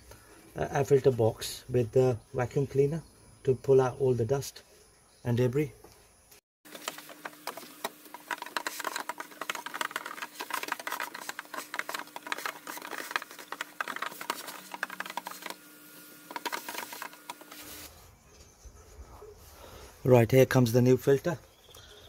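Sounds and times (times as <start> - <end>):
debris rattling in hose: 6.7 - 17.8
vacuum cleaner motor hum: 6.7 - 17.9.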